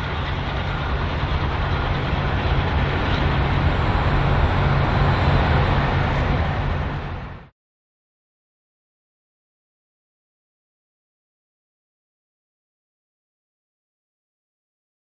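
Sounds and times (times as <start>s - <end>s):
diesel locomotive engine throb: 0.0s - 7.5s
rail noise: 0.0s - 7.5s.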